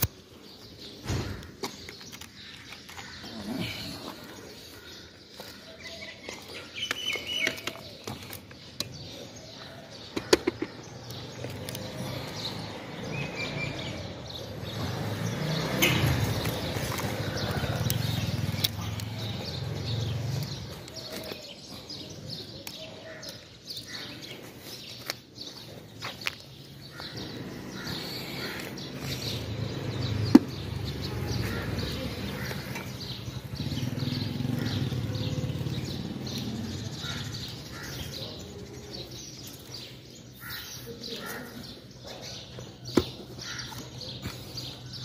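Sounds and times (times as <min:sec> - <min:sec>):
birds chirping: 0:00.0 - 0:45.0.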